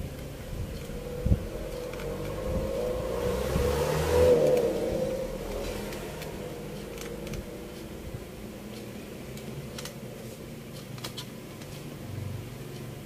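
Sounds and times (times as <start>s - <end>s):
low rumble: 0.0s - 9.9s.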